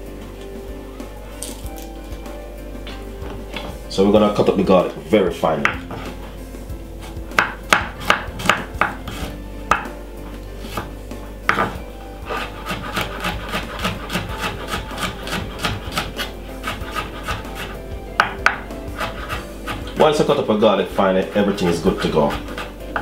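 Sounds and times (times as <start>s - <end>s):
knife chopping on wooden board: 7.3s - 10.0s, 10.7s - 10.9s, 11.5s - 20.1s, 21.5s - 23.0s.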